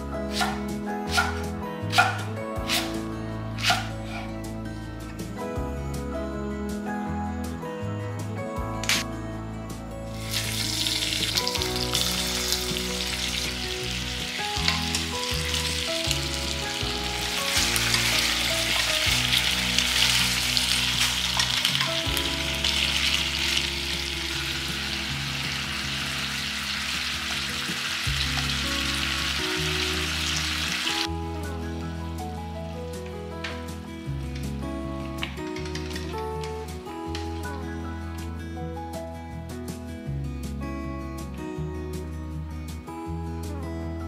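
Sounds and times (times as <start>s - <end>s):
soft background music: 0.0s - 44.0s
chicken sizzling in oil: 10.2s - 31.1s.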